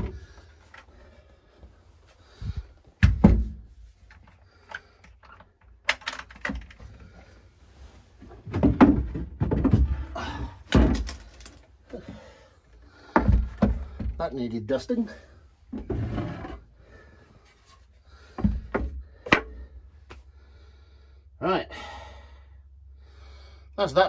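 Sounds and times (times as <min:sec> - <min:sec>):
boards bumping and scraping: 0:02.3 - 0:07.3, 0:08.2 - 0:12.3, 0:12.9 - 0:14.3, 0:15.7 - 0:16.6, 0:17.5 - 0:19.8.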